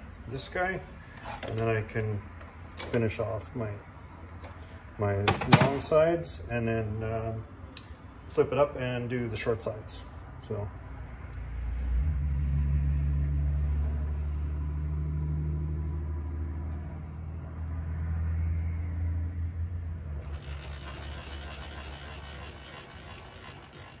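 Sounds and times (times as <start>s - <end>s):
milling machine motor humming: 20.2s - 24.0s.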